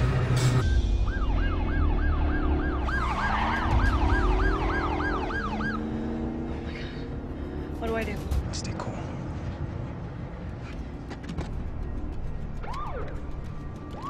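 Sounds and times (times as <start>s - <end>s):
police siren yelping: 0.9s - 7.1s, 12.6s - 13.2s.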